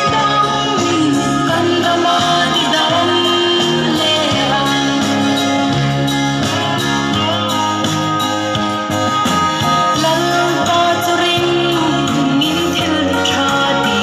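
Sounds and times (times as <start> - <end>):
woman singing into microphone: 0.0 - 5.9, 9.9 - 14.0
instrumental backing with guitar: 0.0 - 14.0.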